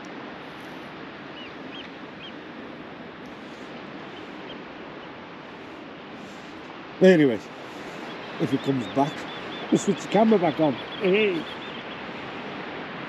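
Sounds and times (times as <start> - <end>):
surf hissing on the shore: 0.0 - 13.0
faint high bird calls: 1.2 - 2.4, 3.3 - 5.2, 7.6 - 12.3.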